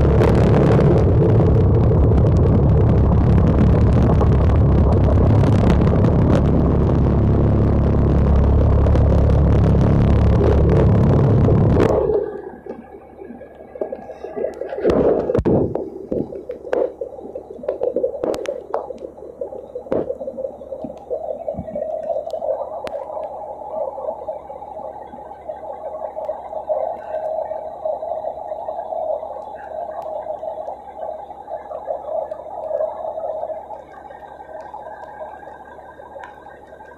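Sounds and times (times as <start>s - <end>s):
bubbling gurgling: 0.0s - 36.9s
loud engine running: 2.6s - 11.9s.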